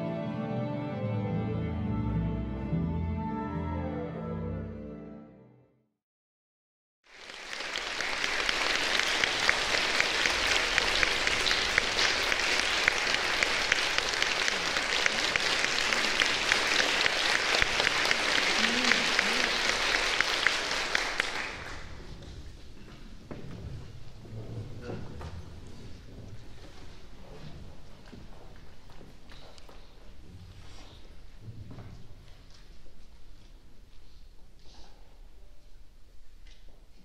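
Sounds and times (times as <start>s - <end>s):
audience applause: 7.1s - 22.2s.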